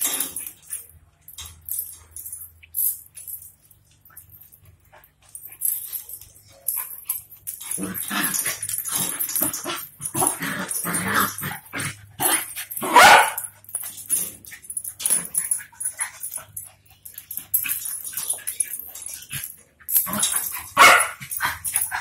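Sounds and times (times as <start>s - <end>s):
dogs barking and yipping: 5.0s - 22.0s.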